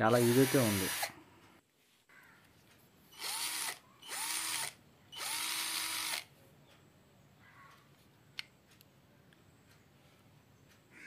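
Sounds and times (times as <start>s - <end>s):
cordless screwdriver motor: 0.0s - 1.1s, 3.2s - 6.3s.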